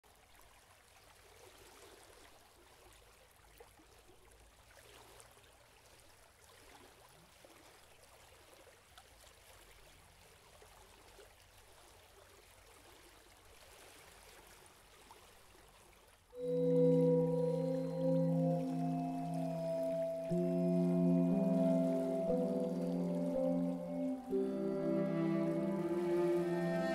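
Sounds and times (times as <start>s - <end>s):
river water flowing: 8.6s - 26.9s
loud sustained music tones: 16.4s - 26.9s.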